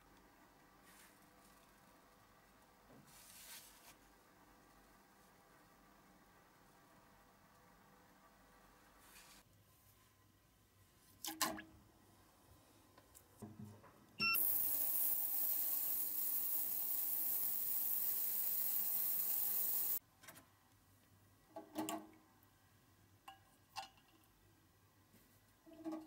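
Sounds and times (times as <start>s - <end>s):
ultrasonic cleaner hiss and hum: 14.2s - 20.0s.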